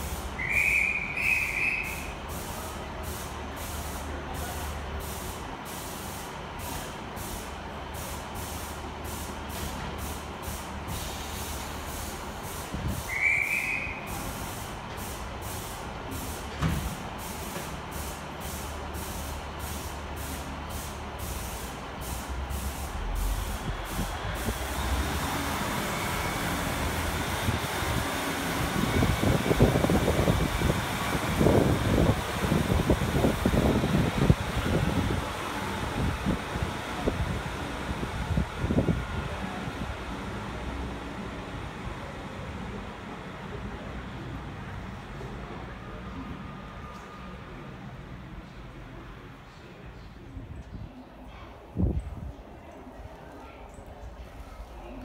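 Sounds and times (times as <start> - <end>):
pulsing air hiss: 0.0 - 37.2
diesel train engines revving: 0.0 - 49.7
high train whistle: 0.4 - 2.2, 13.1 - 14.3.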